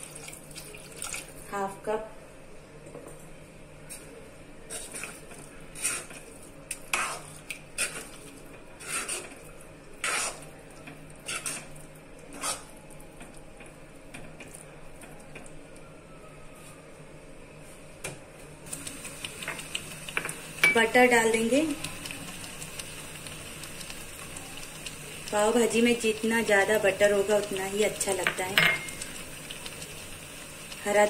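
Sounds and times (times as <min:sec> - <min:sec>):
metal spoon scraping iron pan: 0:08.8 - 0:09.4, 0:11.2 - 0:11.7.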